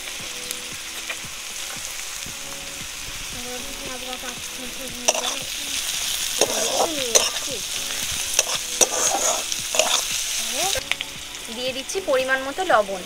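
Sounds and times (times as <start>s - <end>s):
vegetables sizzling in oil: 0.0s - 13.0s
spatula scraping and clacking pan: 5.1s - 10.2s.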